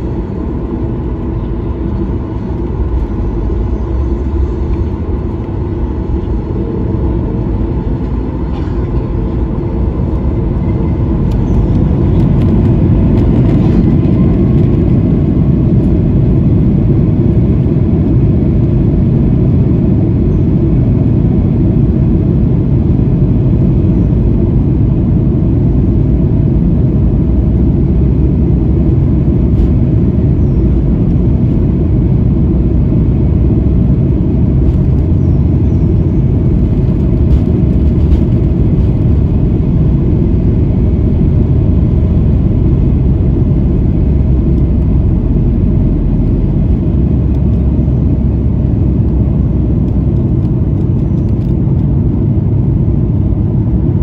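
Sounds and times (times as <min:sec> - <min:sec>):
jet engine whine: 0:00.0 - 0:54.0
jet engines roaring in cabin: 0:00.0 - 0:54.0.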